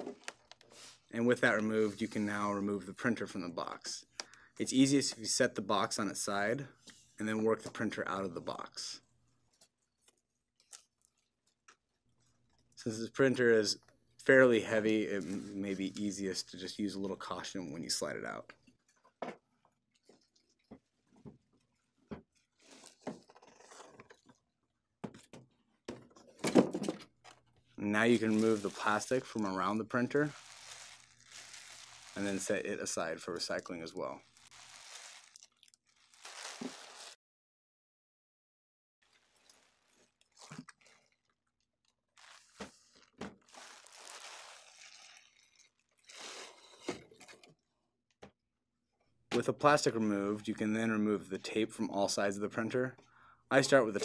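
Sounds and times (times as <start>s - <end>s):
plastic bag rustling: 28.0s - 37.2s, 42.1s - 45.4s.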